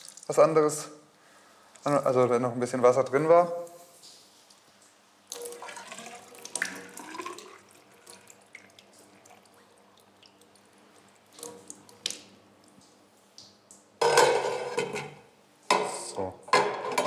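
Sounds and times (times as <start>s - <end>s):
liquid poured from a glass jug: 5.3s - 12.3s.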